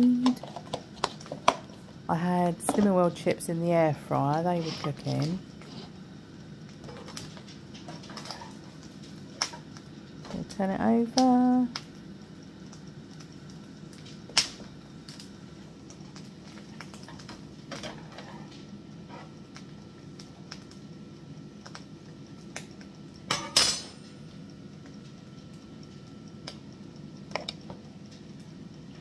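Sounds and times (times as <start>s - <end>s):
low background hum: 0.0s - 29.0s
spatula scraping a frying pan: 19.1s - 19.4s.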